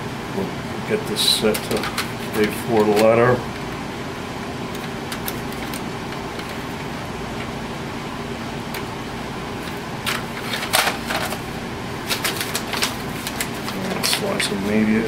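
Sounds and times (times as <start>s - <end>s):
plastic paper cassette clicks: 1.5s - 3.2s, 12.1s - 14.4s.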